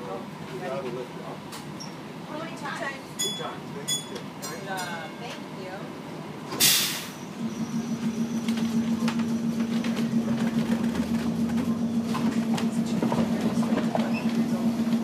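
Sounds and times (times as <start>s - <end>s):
streetcar hum and rumble: 0.0s - 15.0s
air hiss: 6.6s - 7.2s
wheels clicking on rails: 7.8s - 15.0s.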